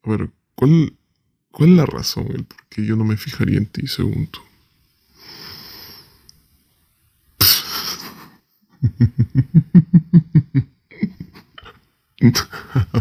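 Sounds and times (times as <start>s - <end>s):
man laughing: 7.6s - 13.0s.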